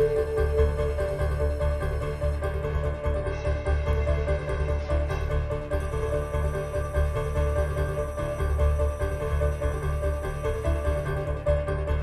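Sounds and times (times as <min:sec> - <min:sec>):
music with pulsing bass: 0:00.0 - 0:12.0.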